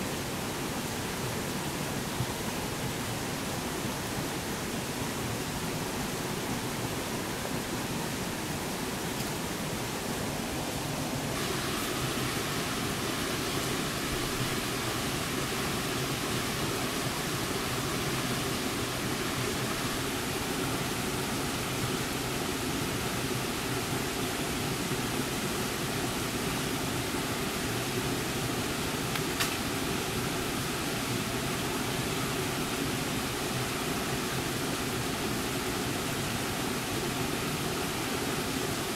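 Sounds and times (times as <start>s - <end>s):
steady hiss: 0.0s - 38.9s
sharp click: 29.1s - 29.6s.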